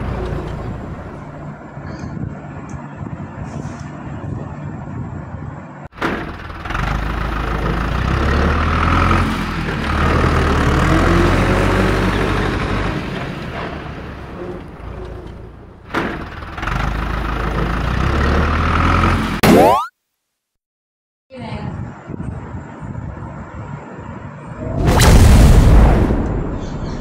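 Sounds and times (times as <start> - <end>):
tractor engine rumbling: 0.0 - 19.4.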